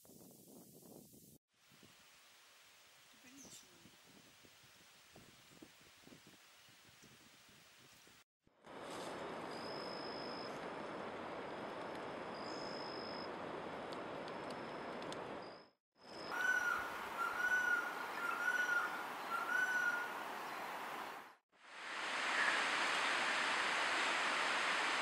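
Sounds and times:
rushing forest background: 0.1s - 25.0s
bird calling mellow note: 16.3s - 20.1s.

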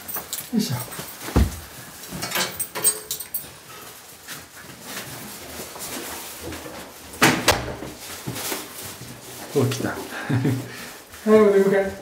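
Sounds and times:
keys jingling: 0.0s - 3.7s
rustling and shuffling: 0.0s - 12.0s.

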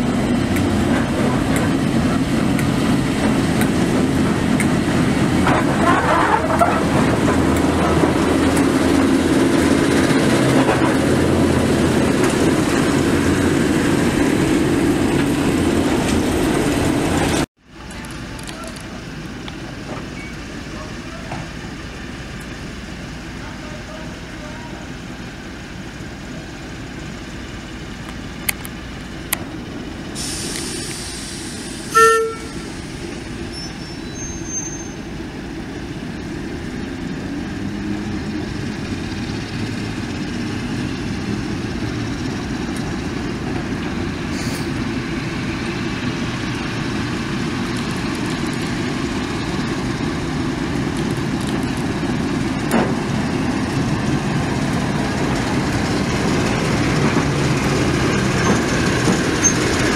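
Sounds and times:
diesel locomotive engine: 0.0s - 59.9s
locomotive horn toot: 31.9s - 32.8s.

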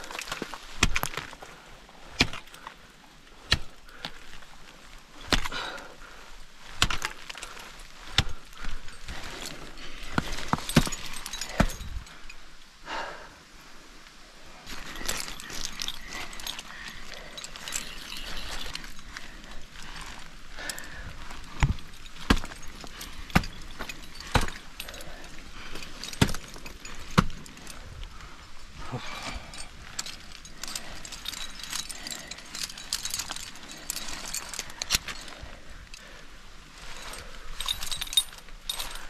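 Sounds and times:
climbing hardware jangling: 6.8s - 12.4s, 14.6s - 36.2s, 36.8s - 39.0s.

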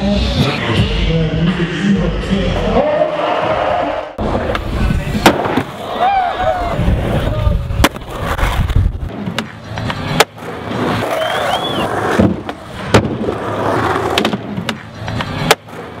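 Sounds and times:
skateboard wheels rolling: 3.2s - 16.0s
skateboard clacking on ground: 7.8s - 16.0s.

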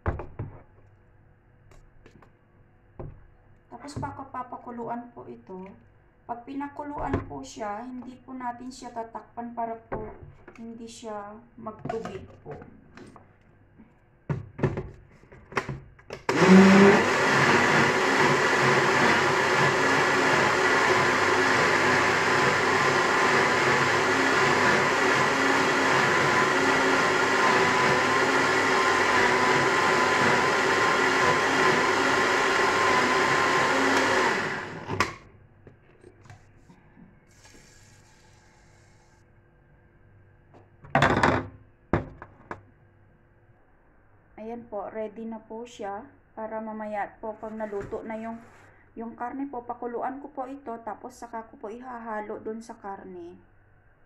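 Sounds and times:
blender motor whining: 16.2s - 35.2s.

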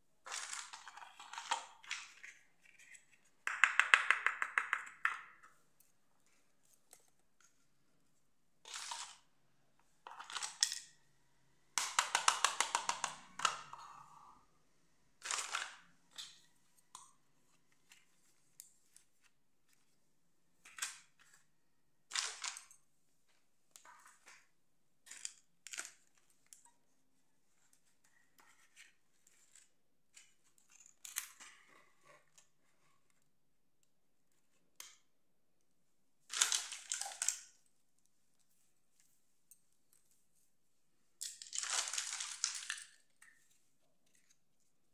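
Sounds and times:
plastic toys clicking and rattling: 10.1s - 11.0s, 41.2s - 43.4s.

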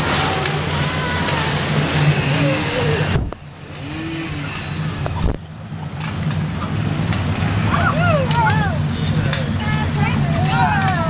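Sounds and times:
faint voices: 0.0s - 5.5s
whitewater rapids rushing: 0.0s - 11.0s.

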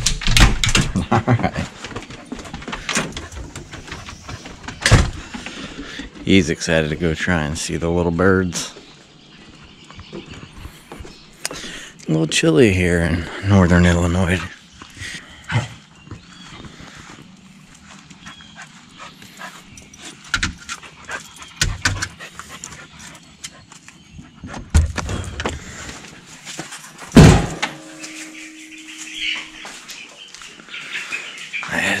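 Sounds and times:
footsteps: 1.6s - 7.2s, 8.6s - 11.8s, 24.6s - 31.8s.

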